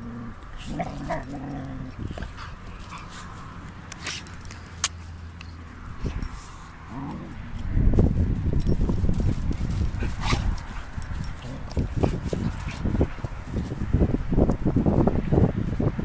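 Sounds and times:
dogs growling and whining: 0:00.0 - 0:03.6, 0:06.1 - 0:07.9, 0:09.8 - 0:12.9.

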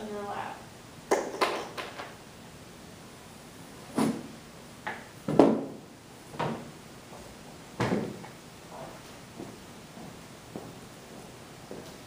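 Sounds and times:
knocks and thumps: 0:05.3 - 0:05.8.

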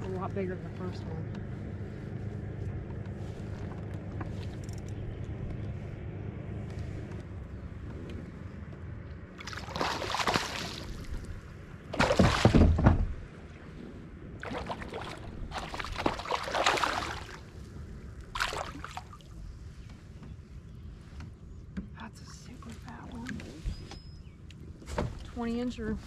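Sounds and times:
fish thrashing and splashing: 0:09.4 - 0:11.3, 0:11.9 - 0:12.8, 0:14.4 - 0:17.5, 0:18.4 - 0:19.3.

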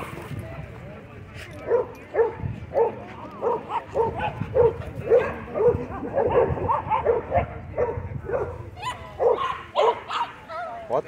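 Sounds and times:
dogs barking: 0:01.6 - 0:10.6.

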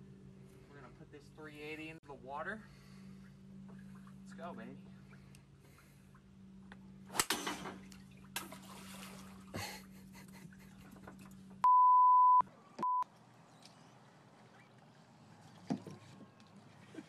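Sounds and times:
golf club hitting bottle: 0:07.1 - 0:07.8
censor bleep tone: 0:11.6 - 0:13.0.

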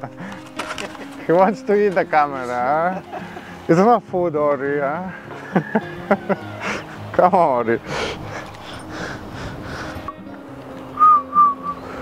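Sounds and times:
quiet background music: 0:00.0 - 0:12.0.

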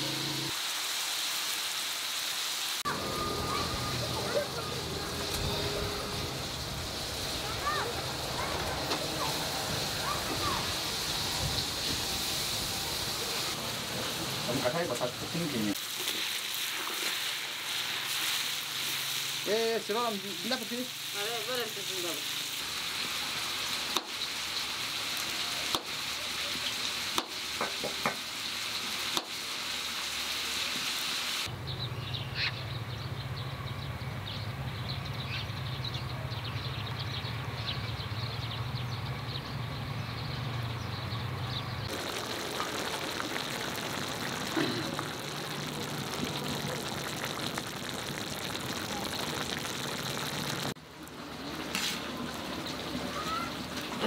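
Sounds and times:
food sizzling in a pan: 0:00.0 - 0:31.5, 0:41.9 - 0:50.8.

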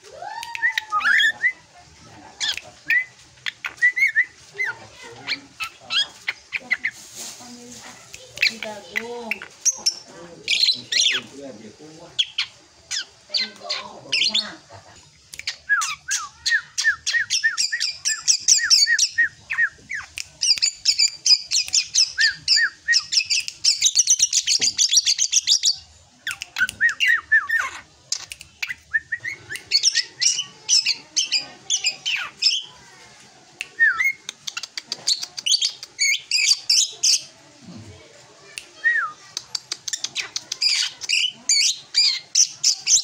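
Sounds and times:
bird chattering notes: 0:34.0 - 0:37.3.

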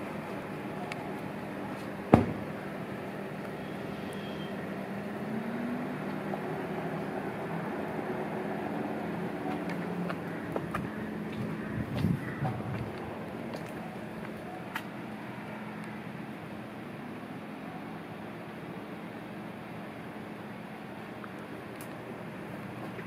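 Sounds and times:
traffic hum: 0:00.0 - 0:23.0
sharp knock: 0:02.1 - 0:02.4.

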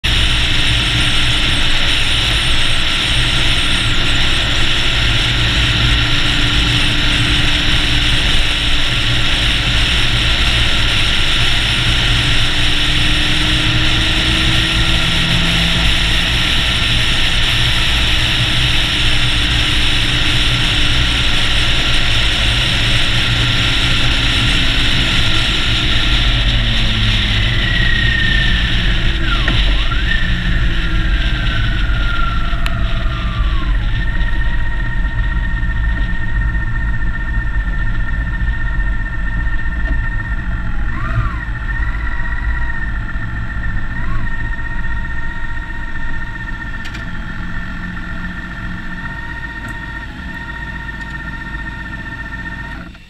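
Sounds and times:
motorcycle engine drone: 0:00.0 - 0:53.0
wind and road roar: 0:00.0 - 0:53.0.

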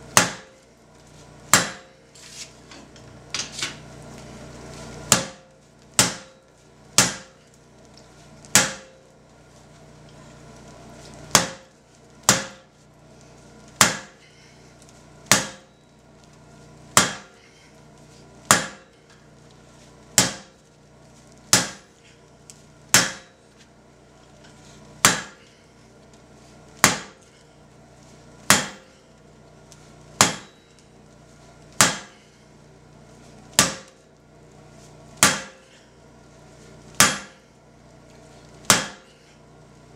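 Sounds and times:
hammer striking steel on anvil: 0:00.1 - 0:00.6, 0:01.5 - 0:02.0, 0:05.1 - 0:07.4, 0:08.5 - 0:09.1, 0:11.3 - 0:11.7, 0:12.3 - 0:12.7, 0:13.8 - 0:14.2, 0:15.3 - 0:15.8, 0:17.0 - 0:17.4, 0:18.5 - 0:19.0, 0:20.2 - 0:20.6, 0:21.5 - 0:21.9, 0:22.9 - 0:23.4, 0:25.0 - 0:25.5, 0:26.8 - 0:27.3, 0:28.5 - 0:29.0, 0:30.2 - 0:30.8, 0:31.8 - 0:32.2, 0:33.6 - 0:34.0, 0:35.2 - 0:35.8, 0:37.0 - 0:37.4, 0:38.7 - 0:39.2.

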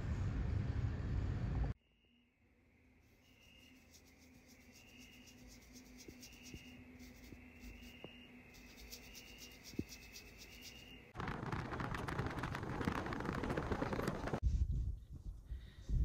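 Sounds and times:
brush scratching on glass palette: 0:03.7 - 0:10.9.

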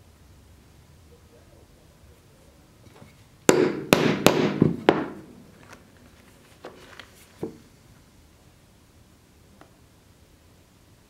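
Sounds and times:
hammer tapping leather on wood: 0:03.5 - 0:05.2.

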